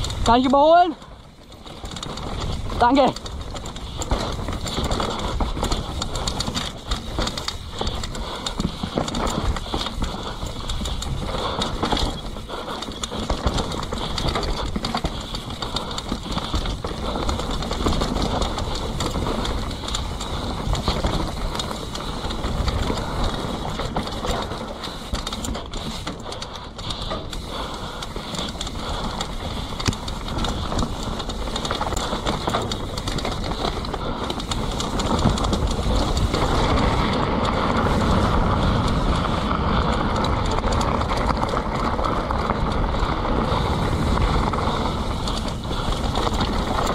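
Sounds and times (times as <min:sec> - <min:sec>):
wind rushing over microphone: 0:00.0 - 0:01.1, 0:01.7 - 0:46.9
bike rattling and knocking: 0:00.0 - 0:46.9
tyres on dirt and leaves: 0:00.0 - 0:46.9.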